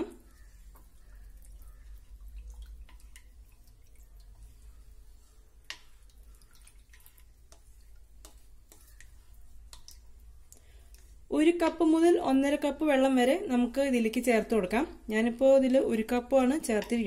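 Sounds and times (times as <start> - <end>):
liquid swishing in bowl: 0.0 - 12.1.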